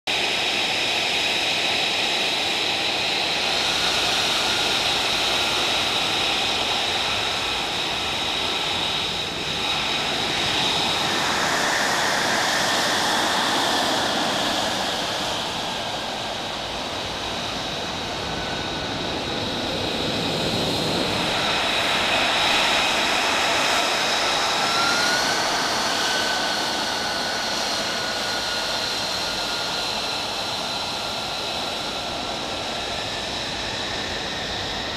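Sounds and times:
jet engine idling: 0:00.1 - 0:34.9.

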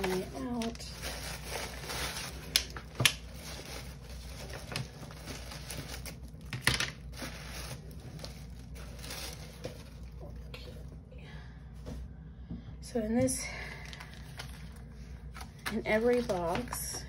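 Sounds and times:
tissue paper rustling: 0:00.0 - 0:10.5.

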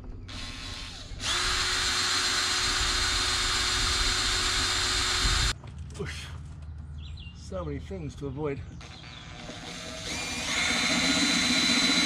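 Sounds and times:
cordless drill whining: 0:00.3 - 0:05.5, 0:08.8 - 0:12.0.

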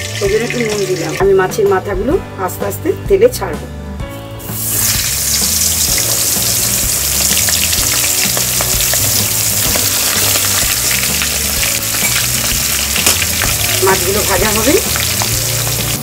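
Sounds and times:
fish frying in hot oil: 0:00.0 - 0:01.2, 0:04.6 - 0:16.0.

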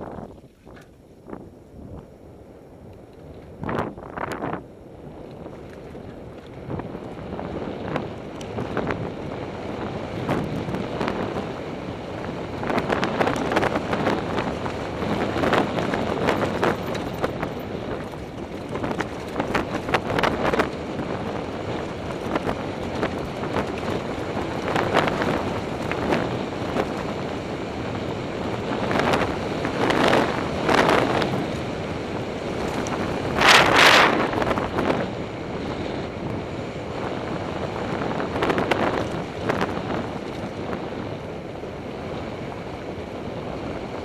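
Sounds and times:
wind buffeting microphone: 0:00.0 - 0:44.0
bike rattling and knocking: 0:12.6 - 0:27.2.

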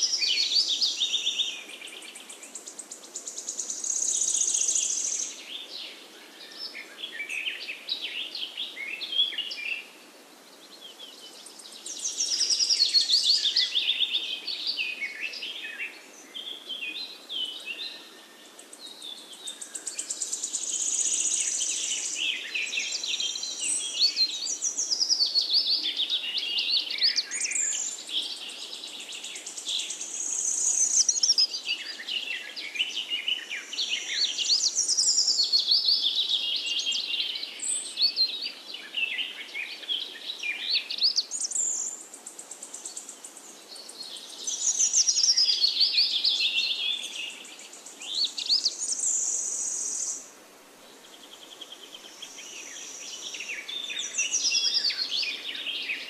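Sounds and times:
birds chirping and trilling: 0:10.6 - 0:50.3, 0:51.0 - 0:56.0.

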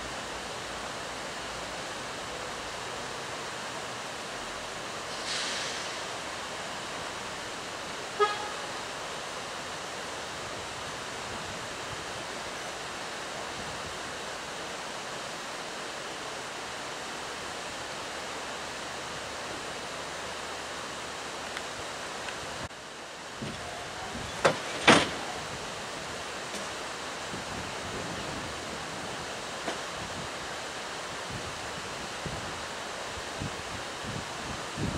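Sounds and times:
steady rushing hiss: 0:00.0 - 0:34.9
short horn toot: 0:08.2 - 0:08.8.

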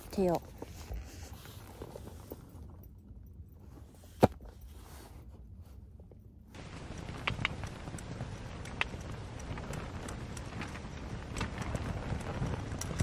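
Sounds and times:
rain pattering on a tent: 0:06.6 - 0:13.0.

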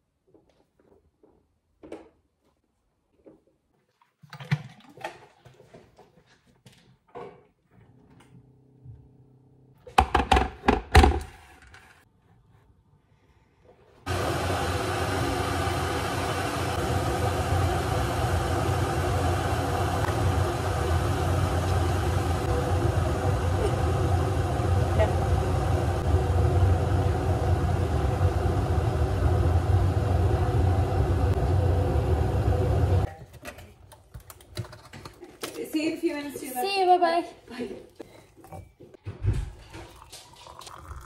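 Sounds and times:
mechanical whir with hum: 0:14.1 - 0:33.1
kettle and crockery clicking: 0:39.7 - 0:41.0.

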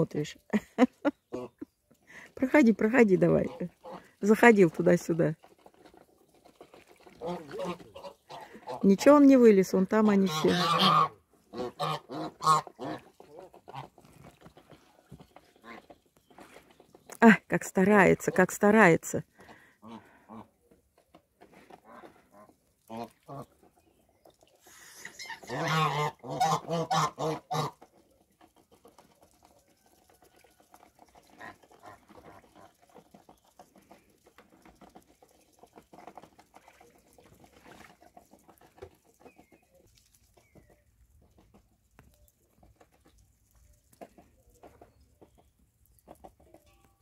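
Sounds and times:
geese honking: 0:10.3 - 0:14.0, 0:25.0 - 0:27.8.

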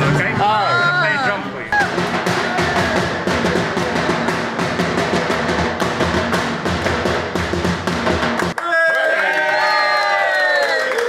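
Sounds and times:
barrel drum fast rhythm: 0:01.8 - 0:08.6.

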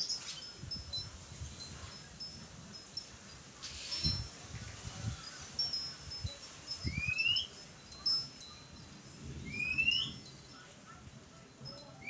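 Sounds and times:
bird singing whistled notes: 0:06.8 - 0:07.6, 0:09.4 - 0:10.4.

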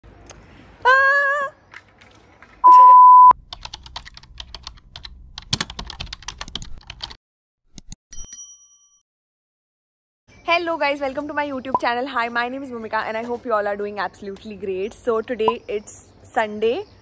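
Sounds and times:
loud steady beep: 0:02.7 - 0:03.3
keyboard typing clicks: 0:03.5 - 0:07.2.

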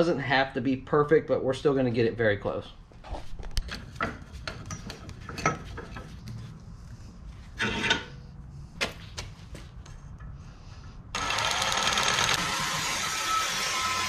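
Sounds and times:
metal scrape: 0:07.4 - 0:08.3.

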